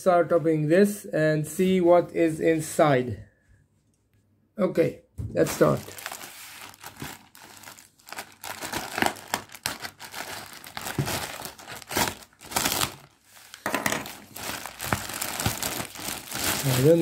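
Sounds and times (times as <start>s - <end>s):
plastic mailer bag crinkling: 5.4s - 17.0s.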